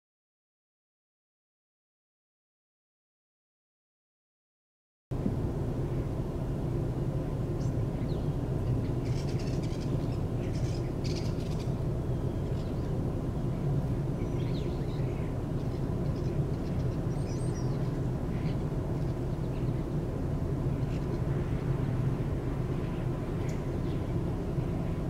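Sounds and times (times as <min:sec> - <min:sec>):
low rumble of distant traffic: 0:05.1 - 0:25.0
faint bird chirps: 0:07.6 - 0:13.6, 0:14.2 - 0:19.9, 0:22.8 - 0:25.0.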